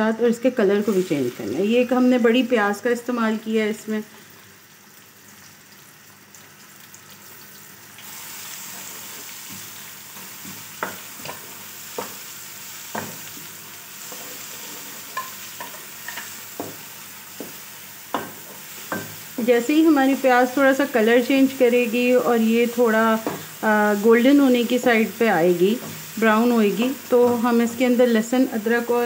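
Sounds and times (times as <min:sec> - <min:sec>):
onion sizzling in hot oil: 0:00.4 - 0:29.0
wooden spatula knocking on pan: 0:10.5 - 0:11.4, 0:16.6 - 0:16.8, 0:17.4 - 0:19.2, 0:23.2 - 0:23.5.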